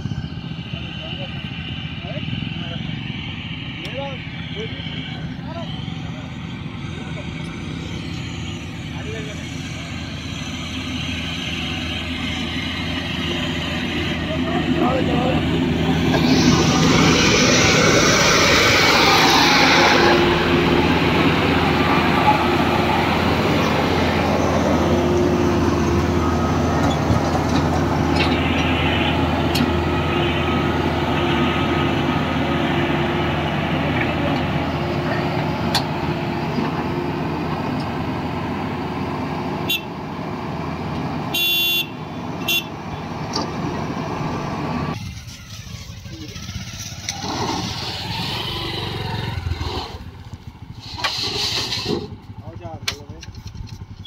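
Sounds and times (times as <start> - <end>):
diesel engine running under load: 0.0 - 54.0
vehicle horn: 39.6 - 40.0, 41.3 - 42.8.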